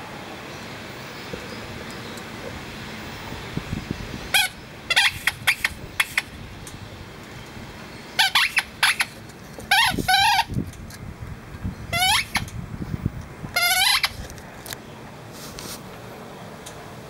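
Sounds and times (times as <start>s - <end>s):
squeaky toy ball squeaking: 4.4s - 6.2s, 8.2s - 10.5s, 11.9s - 12.5s, 13.6s - 14.2s.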